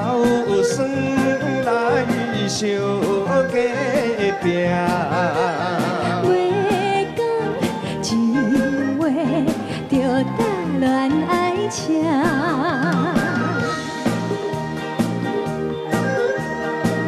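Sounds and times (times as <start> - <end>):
live band playing: 0.0 - 17.0
woman singing with vibrato: 5.3 - 13.8
steady drum beat: 12.2 - 17.0.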